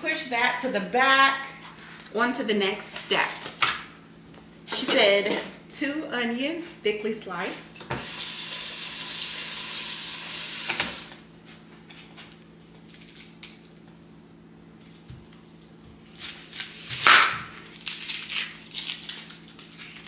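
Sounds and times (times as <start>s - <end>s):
onions crackling and rustling: 14.8s - 20.0s.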